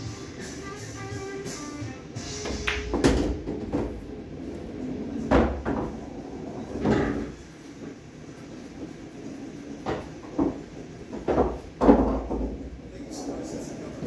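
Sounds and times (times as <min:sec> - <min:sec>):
pool ball knocking through return: 0:02.4 - 0:07.9, 0:08.5 - 0:14.0.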